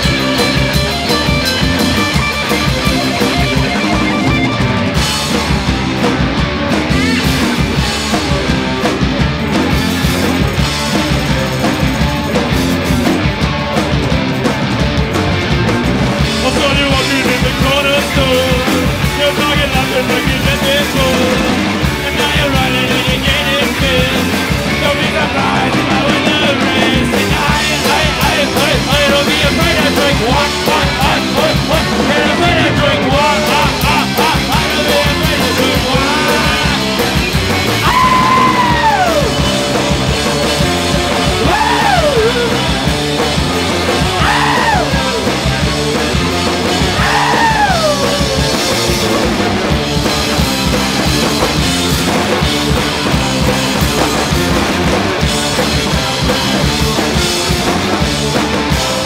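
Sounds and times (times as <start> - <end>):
high sliding guitar notes: 0.0 - 8.9, 29.5 - 51.9
punk rock band playing: 0.0 - 59.0.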